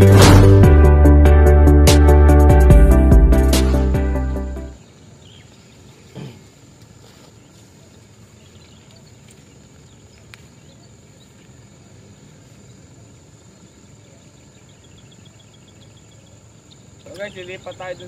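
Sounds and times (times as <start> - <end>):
faint chirps: 4.8 - 18.0.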